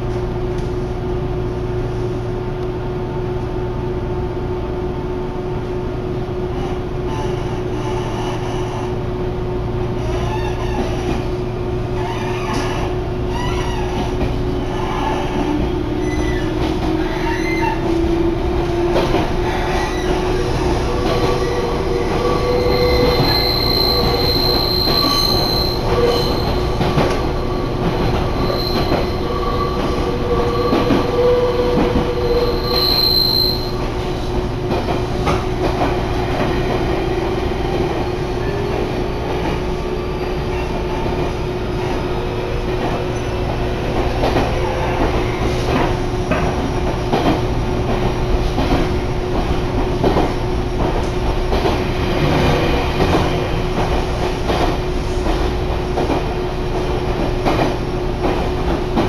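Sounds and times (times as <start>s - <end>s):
train wheels rumbling on rail: 0.0s - 59.0s
high wheel squeal: 14.6s - 17.9s, 19.4s - 34.2s.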